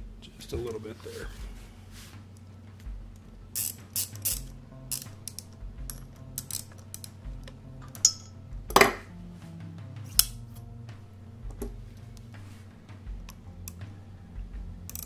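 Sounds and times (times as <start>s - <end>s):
quiet background music with bass: 0.0s - 15.0s
hand tools clicking on metal: 2.4s - 9.0s, 13.2s - 14.0s.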